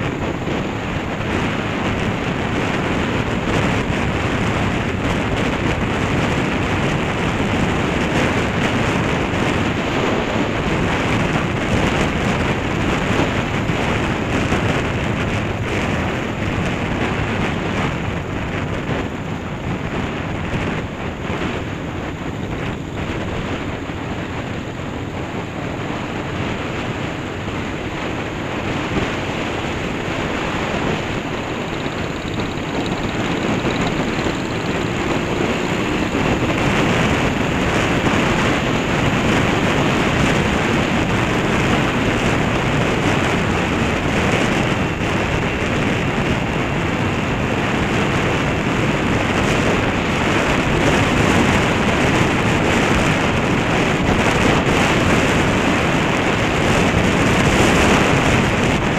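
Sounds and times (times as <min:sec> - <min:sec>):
motorcycle engine: 0:00.0 - 0:58.9
road noise: 0:00.0 - 0:58.9
wind rushing over microphone: 0:00.0 - 0:58.9.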